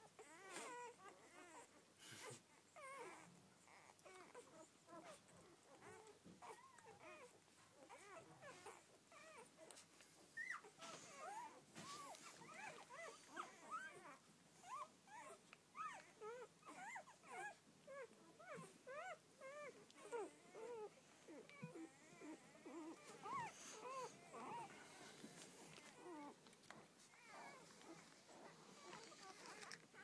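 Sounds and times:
puppies squeaking and whimpering: 0:00.2 - 0:09.7, 0:10.4 - 0:26.4, 0:27.0 - 0:30.0.

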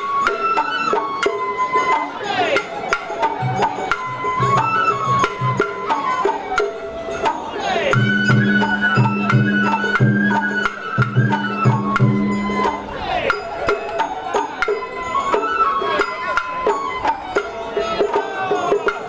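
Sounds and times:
bamboo flute melody: 0:00.0 - 0:19.0
clicking percussion strikes: 0:00.0 - 0:19.0
low drum beats: 0:07.9 - 0:13.8.

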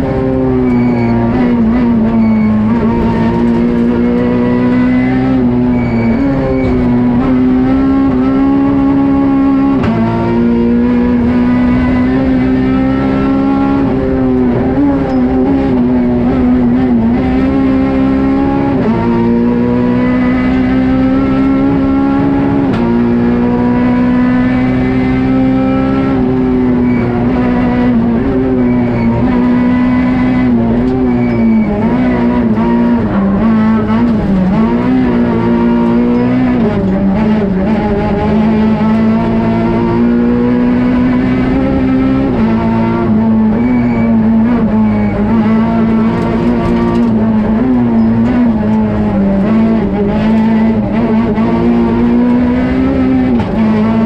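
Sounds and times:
car engine at high revs: 0:00.0 - 0:54.0.

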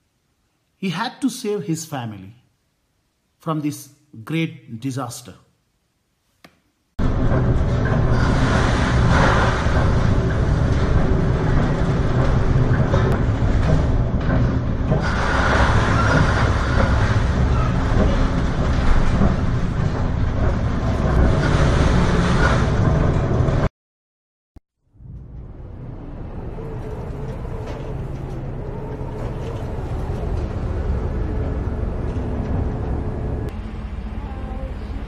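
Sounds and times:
heavy seas: 0:07.0 - 0:23.7, 0:25.2 - 0:35.0
low hum: 0:07.0 - 0:23.7, 0:24.8 - 0:35.0
rushing wind: 0:07.0 - 0:23.7, 0:25.0 - 0:34.2
waves breaking over the bow: 0:08.0 - 0:12.1, 0:15.0 - 0:19.7.

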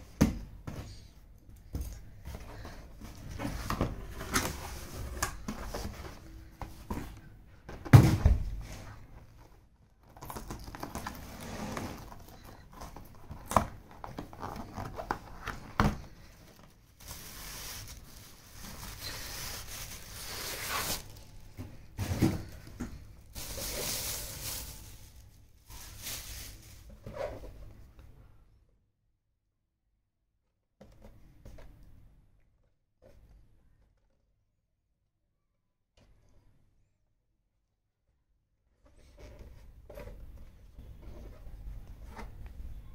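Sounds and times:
plastic bag rustling: 0:10.1 - 0:27.5.

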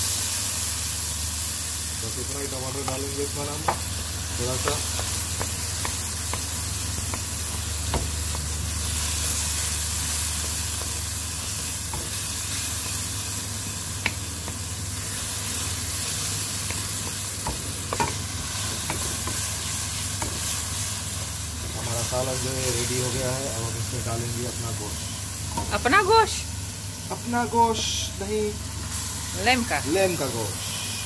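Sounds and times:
masala sizzling in a pan: 0:00.0 - 0:31.0
spatula tapping and scraping pan: 0:04.6 - 0:08.5, 0:16.6 - 0:19.5.

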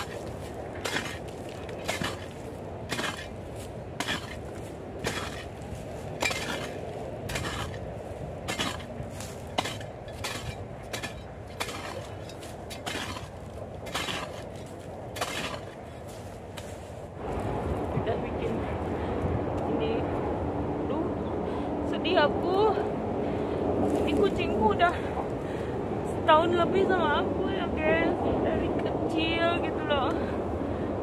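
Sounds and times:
shovel digging into dry soil: 0:00.0 - 0:16.9.

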